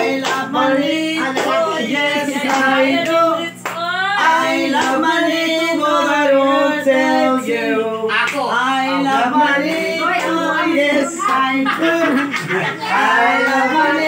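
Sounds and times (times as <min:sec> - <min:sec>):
group singing together: 0:00.0 - 0:14.0
hand claps: 0:00.2 - 0:00.5, 0:01.2 - 0:01.6, 0:02.3 - 0:03.8, 0:11.2 - 0:12.6.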